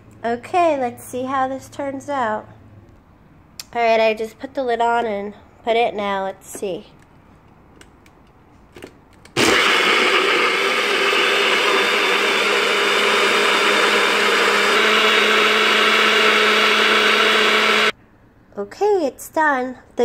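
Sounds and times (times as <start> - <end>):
blender running: 9.4 - 17.9.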